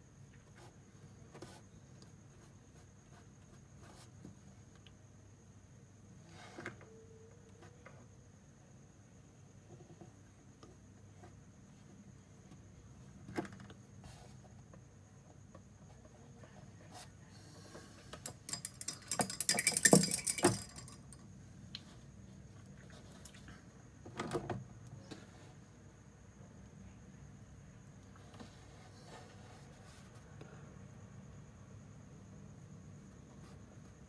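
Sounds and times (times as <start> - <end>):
faint high whine: 5.1 - 9.5
quick clicking and rattling: 18.2 - 21.2.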